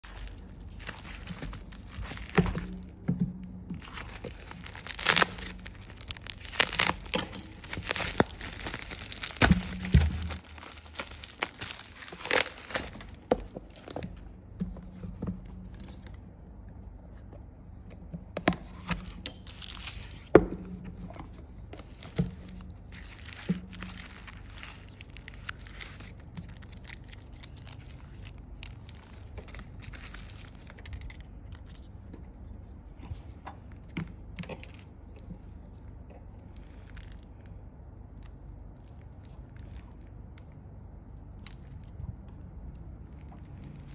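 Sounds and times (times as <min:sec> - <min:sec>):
plastic mailer tearing and crinkling: 0:00.0 - 0:03.0, 0:03.8 - 0:14.2, 0:18.6 - 0:20.3, 0:21.6 - 0:31.9
bubble wrap crinkling: 0:00.0 - 0:15.9, 0:18.4 - 0:20.4, 0:21.0 - 0:33.9, 0:35.6 - 0:43.9.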